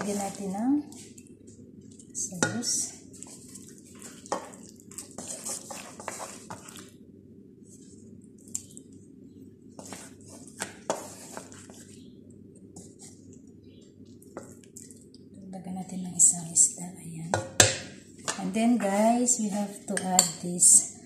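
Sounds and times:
thick sauce plopping and squelching: 1.8s - 6.9s.

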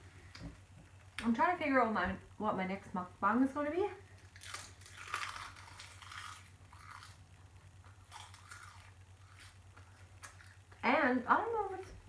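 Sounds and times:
chewing crisp seaweed: 4.1s - 10.8s.

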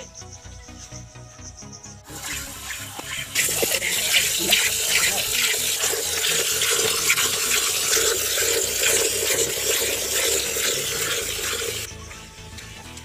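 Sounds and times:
milk squirting into bucket: 2.1s - 11.9s.

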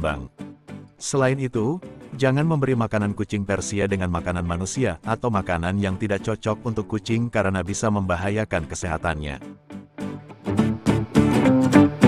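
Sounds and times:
instrumental music: 8.6s - 12.0s.

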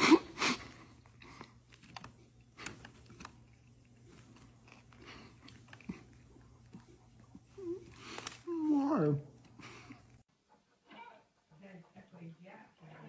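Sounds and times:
chewing: 0.6s - 10.2s.

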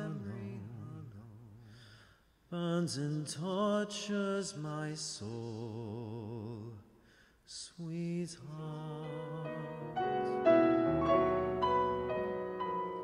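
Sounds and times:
singer breathing: 1.6s - 2.5s, 6.9s - 7.5s.

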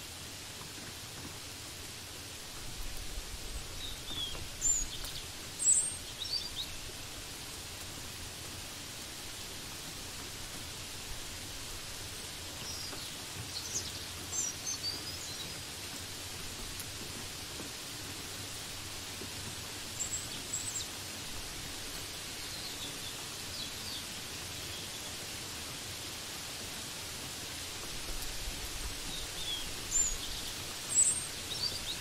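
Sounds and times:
rain hissing: 0.0s - 32.0s
small birds chirping: 3.5s - 7.2s, 12.1s - 16.8s, 19.7s - 21.0s, 21.6s - 25.9s, 28.1s - 32.0s.

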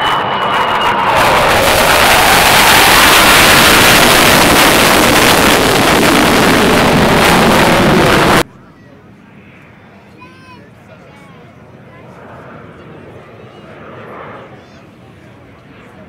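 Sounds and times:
jet fighter flying past: 0.0s - 8.5s, 12.0s - 16.0s.

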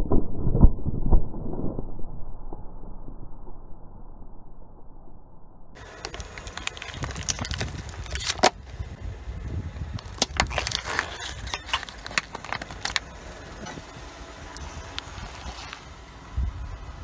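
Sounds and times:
car rumble: 4.4s - 17.0s
plastic cups cracking under tyre: 5.8s - 8.9s, 9.8s - 16.0s.

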